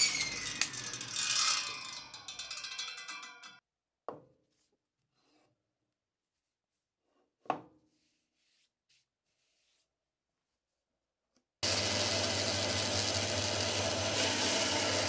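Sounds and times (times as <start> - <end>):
hand brushing wood: 7.9 - 10.8.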